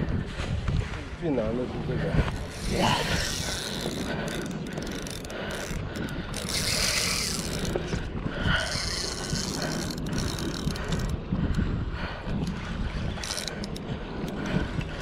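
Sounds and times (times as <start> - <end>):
fishing reel gears and drag: 2.3 - 11.2, 12.4 - 14.4.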